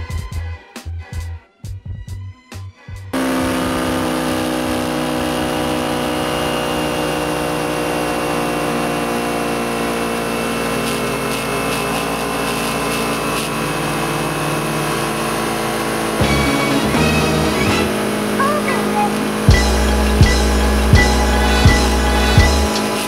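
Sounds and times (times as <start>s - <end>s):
motorcycle engine cruising: 3.1s - 23.0s.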